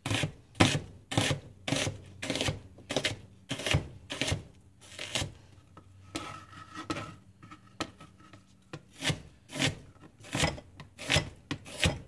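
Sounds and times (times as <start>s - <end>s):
knife chopping on cutting board: 0.0s - 5.3s, 8.7s - 12.0s
knife slicing onion: 0.0s - 5.5s, 8.7s - 12.0s.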